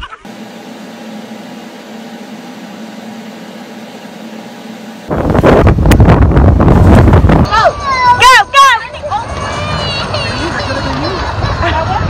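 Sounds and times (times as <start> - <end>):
machine hum with hiss: 0.3 - 7.5
loud rushing noise: 4.9 - 7.6.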